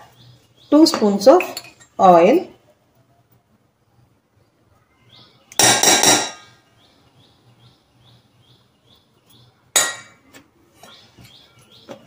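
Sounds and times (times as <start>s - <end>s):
faint bird chirps: 4.4s - 5.6s
metal spoon striking steel bowl: 5.6s - 6.5s.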